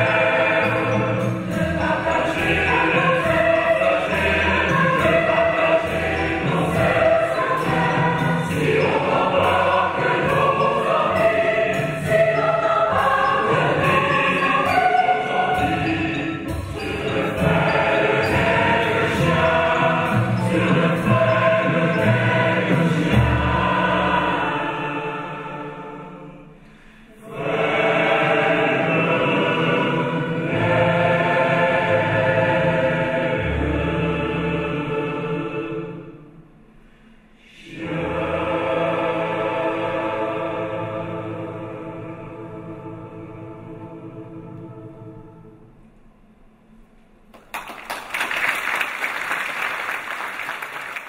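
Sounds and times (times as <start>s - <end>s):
string orchestra: 0.0s - 26.3s
choir singing: 0.0s - 36.5s, 37.3s - 45.8s
audience applauding: 47.4s - 51.0s.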